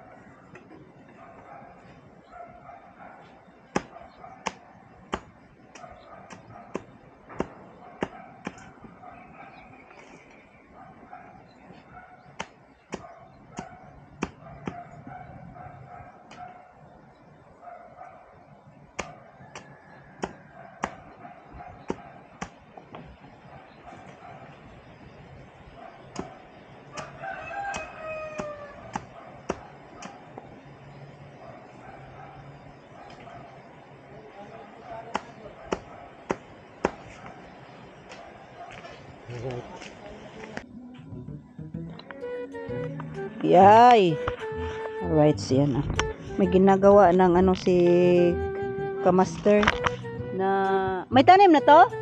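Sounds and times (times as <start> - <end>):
knife chopping bamboo: 27.0 - 30.2, 35.1 - 37.2.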